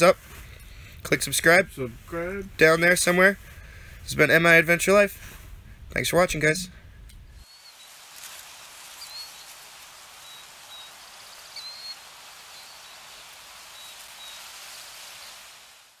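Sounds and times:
steady hiss: 0:00.0 - 0:16.0
faint bird chirps: 0:06.6 - 0:15.5.

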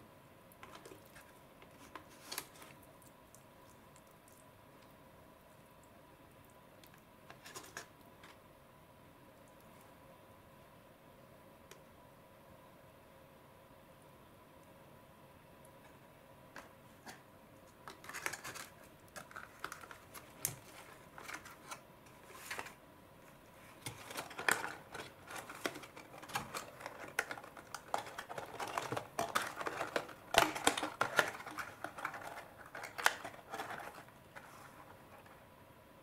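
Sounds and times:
plastic and cardboard handling: 0:00.6 - 0:02.8, 0:16.6 - 0:35.4.

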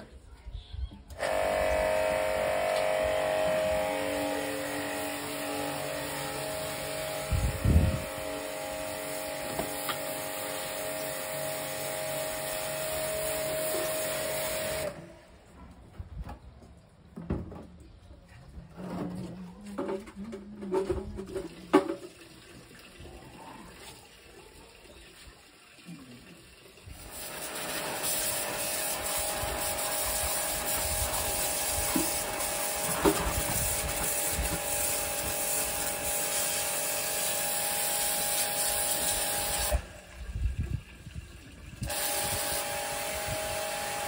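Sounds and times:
water running from a tap: 0:02.8 - 0:14.9, 0:21.2 - 0:44.0.

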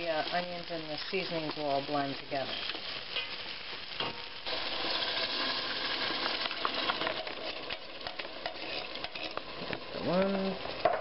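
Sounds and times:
sausages and onions sizzling: 0:00.0 - 0:11.0
sauce poured into hot pot: 0:04.4 - 0:10.0.

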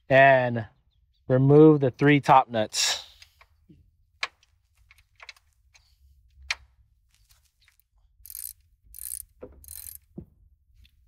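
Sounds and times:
wrench ratcheting clicks: 0:08.2 - 0:10.0
wrench clinking on metal: 0:08.3 - 0:10.0.

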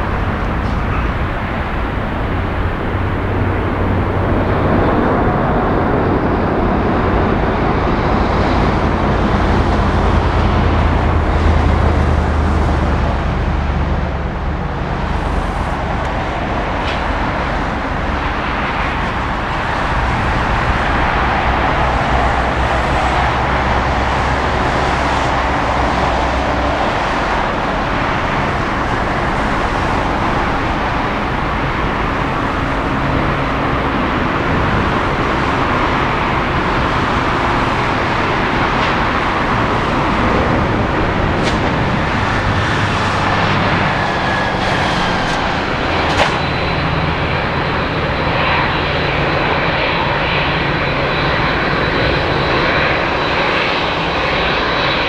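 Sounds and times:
jet engines running loud: 0:00.0 - 0:55.0.

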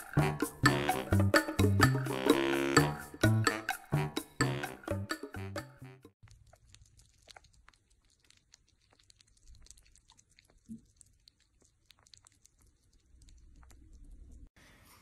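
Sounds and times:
small animals licking and nibbling: 0:06.2 - 0:14.6.

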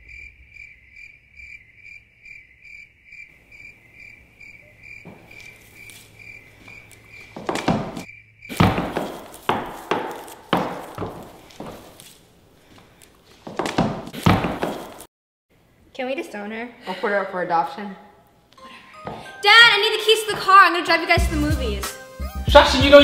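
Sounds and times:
pulsing cricket chirp: 0:00.0 - 0:07.4, 0:08.0 - 0:08.6
loud thumps: 0:07.4 - 0:11.2.

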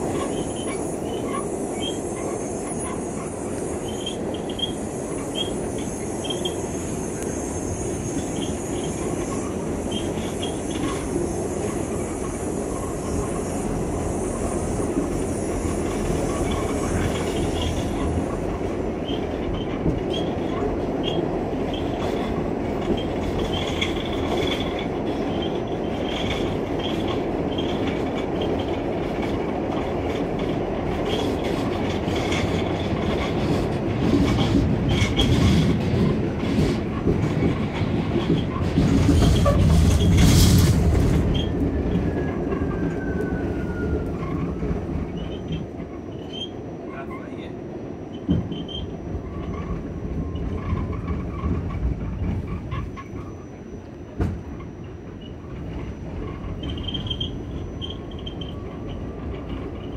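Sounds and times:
high wheel squeals: 0:00.0 - 0:28.8, 0:38.2 - 0:53.8, 0:54.4 - 0:59.9
train wheels rumbling on rails: 0:00.0 - 0:59.9.

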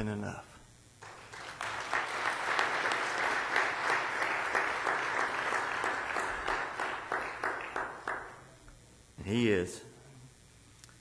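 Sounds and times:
congregation applauding: 0:01.0 - 0:08.6.

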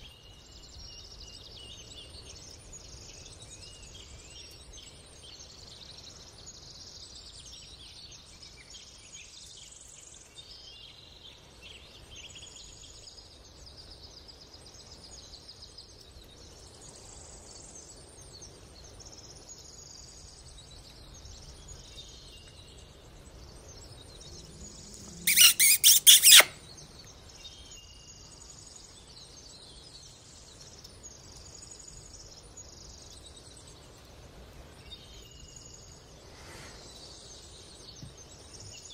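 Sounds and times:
small birds chirping: 0:18.4 - 0:38.9.

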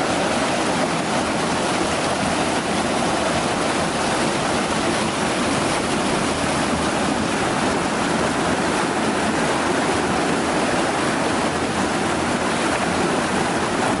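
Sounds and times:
water rushing and splashing: 0:00.0 - 0:14.0.

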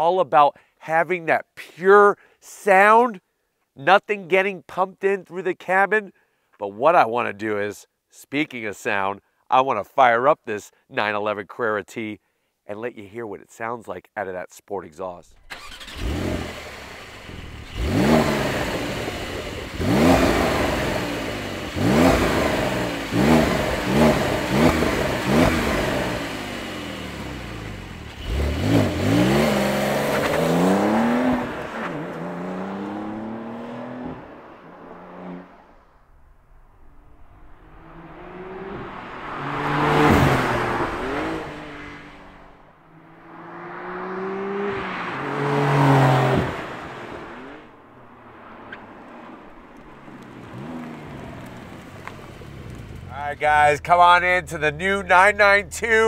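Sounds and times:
sports car engine revving: 0:15.3 - 0:35.6, 0:36.8 - 0:47.8, 0:48.4 - 0:56.0.

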